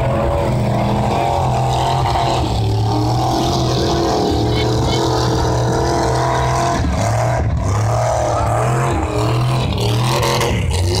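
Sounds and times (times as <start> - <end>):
truck engines revving: 0.0 - 11.0.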